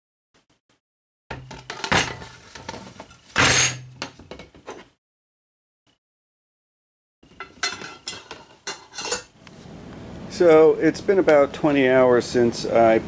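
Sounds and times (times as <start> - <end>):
metal parts clunking in a pipe: 1.3 - 4.9, 7.3 - 9.3
metal clinking: 7.4 - 9.3.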